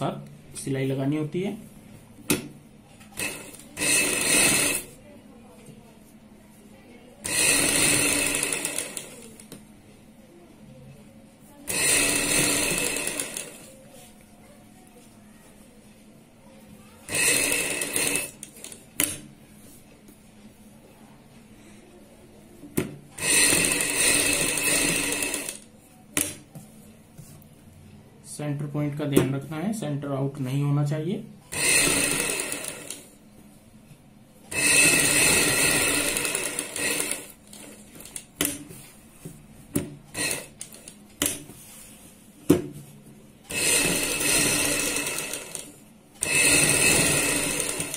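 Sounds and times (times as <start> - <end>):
sewing machine stitching: 3.2 - 5.0, 7.2 - 9.6, 11.7 - 13.7, 17.1 - 19.2, 23.2 - 25.7, 31.5 - 33.2, 34.5 - 38.3, 40.1 - 41.4, 43.5 - 47.9.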